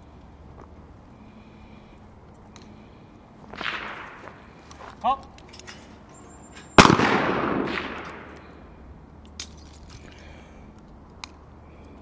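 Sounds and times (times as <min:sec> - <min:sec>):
pistol shot: 0:03.6 - 0:04.3, 0:06.8 - 0:08.4.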